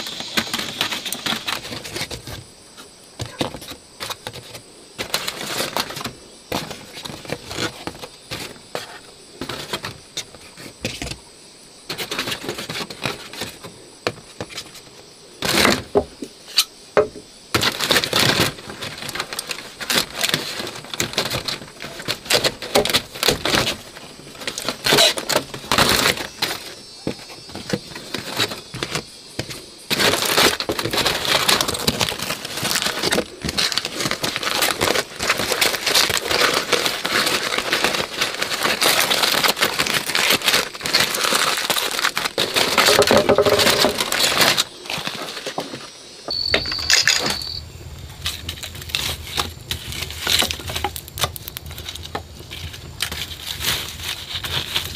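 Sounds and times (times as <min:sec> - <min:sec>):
aluminium foil crinkling: 0:00.0 - 0:02.4, 0:03.3 - 0:10.4, 0:17.6 - 0:45.9, 0:46.5 - 0:54.9.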